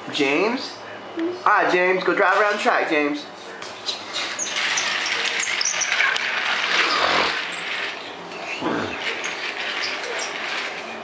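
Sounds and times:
toy train motor whirring: 0:04.5 - 0:08.0, 0:09.0 - 0:10.8.

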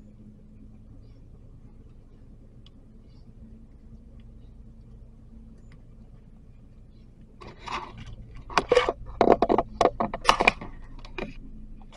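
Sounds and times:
crackling and scraping: 0:07.2 - 0:11.9.

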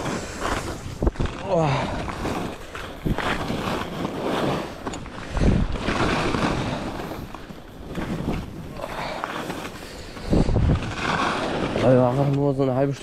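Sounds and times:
skis swishing through snow: 0:00.0 - 0:13.0
wind buffeting microphone: 0:04.8 - 0:09.0, 0:10.2 - 0:12.2.

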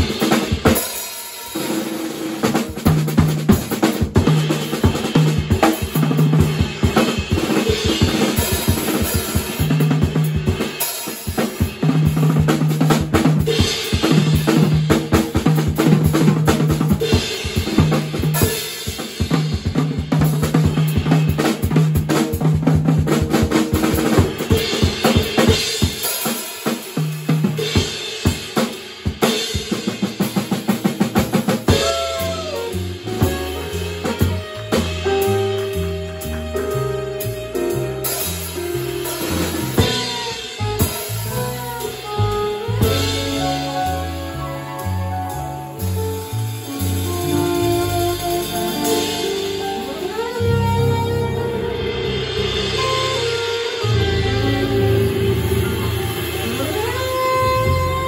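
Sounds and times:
jazz drum solo: 0:00.0 - 0:58.0
moving bass line: 0:31.7 - 0:58.0
saxophone: 0:31.7 - 0:58.0.

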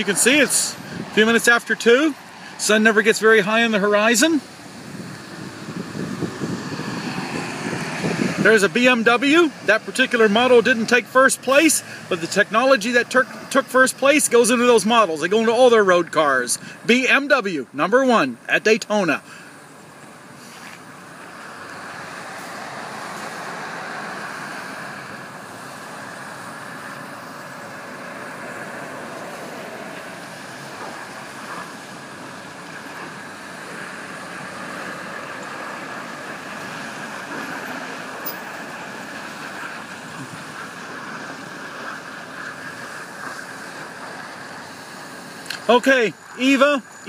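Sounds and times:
road traffic noise: 0:00.0 - 0:47.0.

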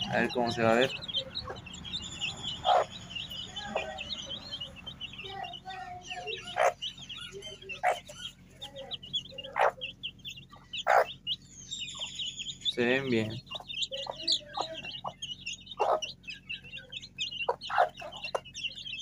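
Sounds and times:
chicks peeping: 0:00.0 - 0:19.0
hen clucking: 0:00.0 - 0:19.0.

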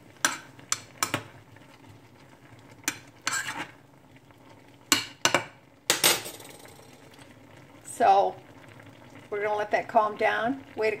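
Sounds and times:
metal spoon scraping saucepan: 0:02.9 - 0:03.7.

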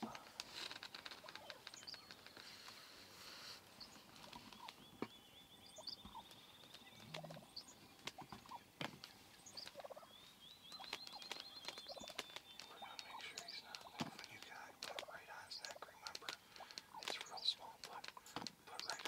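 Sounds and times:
turkey gobbling: 0:09.6 - 0:10.1.

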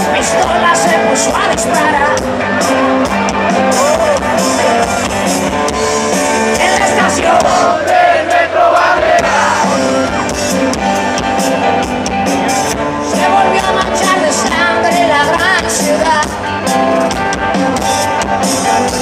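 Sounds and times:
live rock band playing: 0:00.0 - 0:19.0
person singing: 0:13.1 - 0:16.4.

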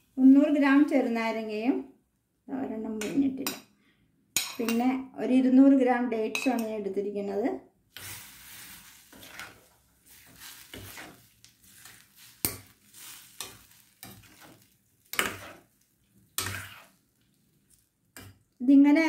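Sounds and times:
ladle scraping a pan: 0:07.9 - 0:17.0.

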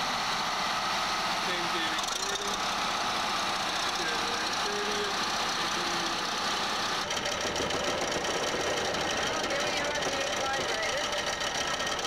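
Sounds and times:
crane engine running: 0:00.0 - 0:12.0
vibratory pile hammer drone: 0:01.6 - 0:12.0
rattle: 0:07.0 - 0:12.0.

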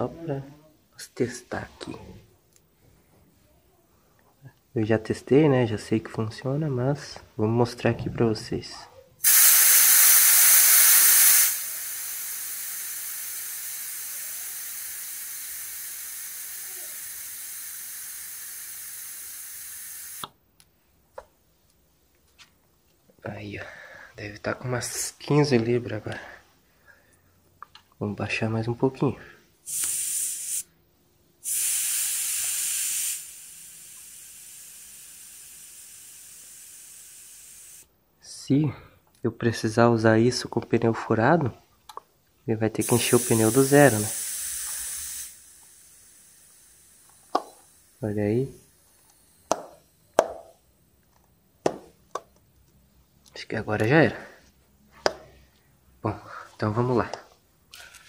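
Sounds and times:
air hissing out of tyre valve: 0:09.2 - 0:20.3, 0:29.6 - 0:30.8, 0:31.4 - 0:37.9, 0:42.8 - 0:50.6.

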